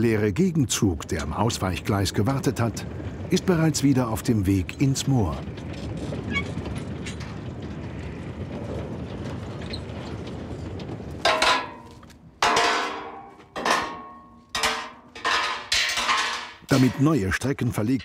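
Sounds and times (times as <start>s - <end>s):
train wagons rumbling: 0.0s - 18.0s
hammer striking steel: 11.3s - 17.4s.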